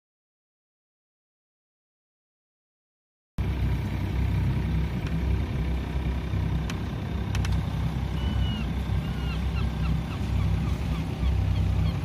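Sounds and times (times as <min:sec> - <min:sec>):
boat engine rumbling: 0:03.4 - 0:12.0
gull calling: 0:08.0 - 0:12.0.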